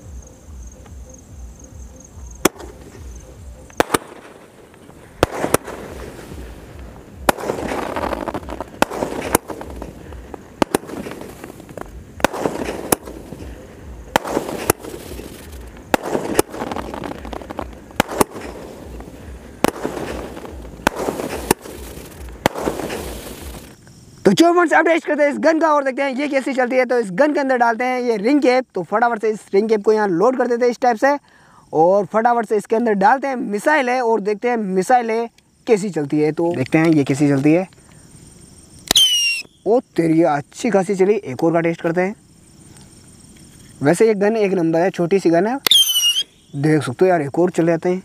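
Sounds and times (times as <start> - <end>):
firework bangs: 2.4 - 23.8, 38.8 - 39.6, 45.6 - 46.4
firework shells hissing: 2.4 - 24.2, 36.6 - 39.7, 45.6 - 46.8.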